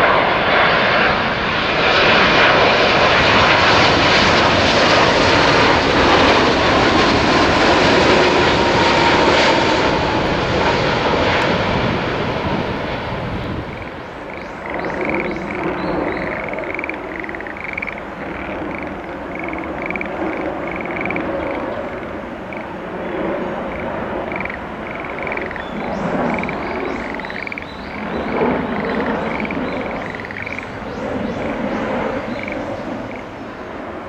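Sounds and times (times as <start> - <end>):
jet airliner rumble: 0.0 - 34.0
frogs croaking: 13.4 - 33.6.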